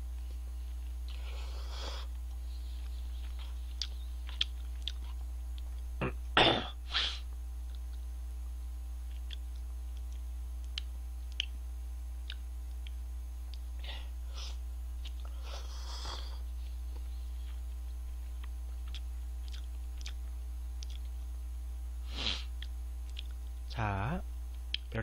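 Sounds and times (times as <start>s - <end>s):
sneeze-like burst of breath: 6.8s - 7.2s, 22.1s - 22.5s.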